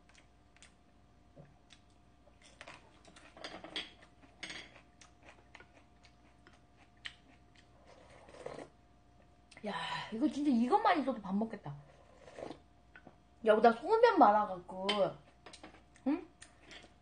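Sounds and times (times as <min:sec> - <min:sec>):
chewing pepper: 0:04.0 - 0:08.8.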